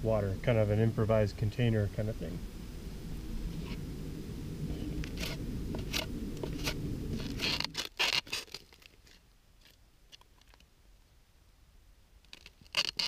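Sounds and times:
low rumble: 0:00.0 - 0:07.7
knife scraping dry stalk: 0:05.1 - 0:10.6, 0:12.3 - 0:13.0.

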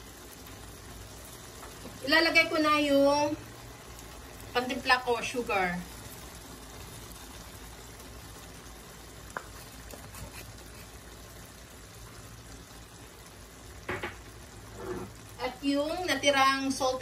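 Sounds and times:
sauce bubbling in a frying pan: 0:00.0 - 0:17.0.

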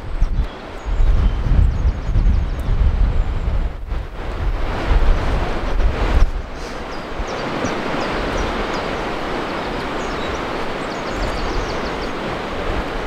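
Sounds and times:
small birds chirping: 0:00.0 - 0:03.6, 0:06.5 - 0:12.4
wind gusting on microphone: 0:00.0 - 0:13.0.

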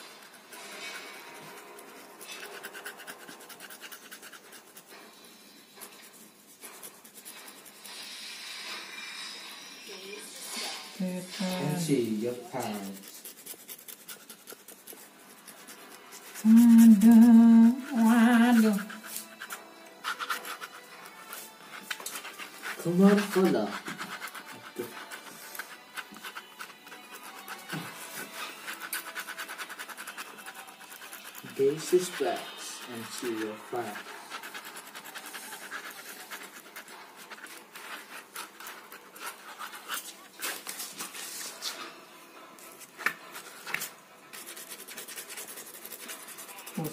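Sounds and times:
pen scratching on paper: 0:00.0 - 0:05.1, 0:05.8 - 0:08.1, 0:11.8 - 0:41.7, 0:43.0 - 0:46.9
person humming: 0:16.4 - 0:19.0.

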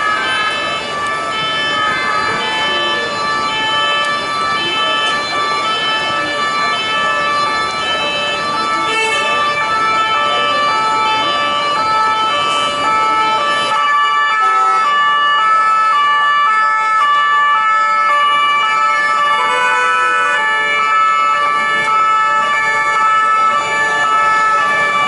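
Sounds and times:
police car two-tone siren: 0:00.0 - 0:25.0
second two-tone siren: 0:00.0 - 0:25.0
traffic noise: 0:00.0 - 0:25.0.

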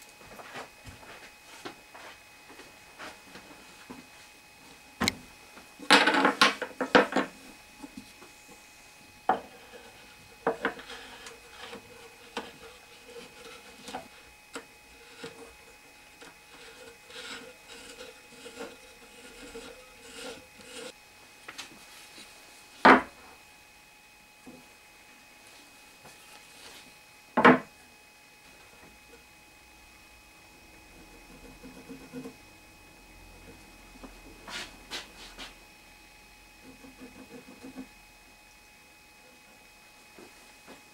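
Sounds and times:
nuts rubbing on threaded rods: 0:09.5 - 0:14.3, 0:15.0 - 0:20.9.

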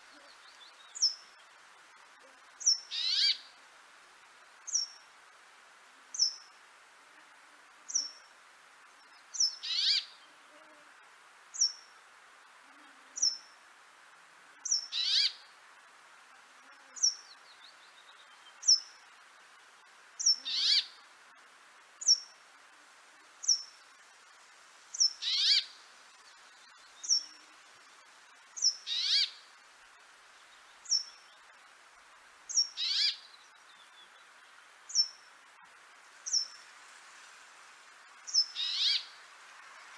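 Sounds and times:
songbird harsh call: 0:02.6 - 0:03.5, 0:09.3 - 0:10.2, 0:14.7 - 0:15.5, 0:20.2 - 0:21.0, 0:24.9 - 0:25.8, 0:28.6 - 0:29.5, 0:32.5 - 0:34.3, 0:36.2 - 0:36.7, 0:38.2 - 0:39.3.

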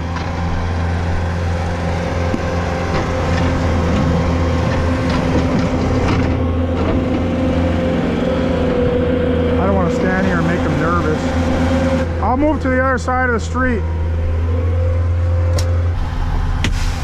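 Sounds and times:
loader engine running: 0:00.0 - 0:17.0.

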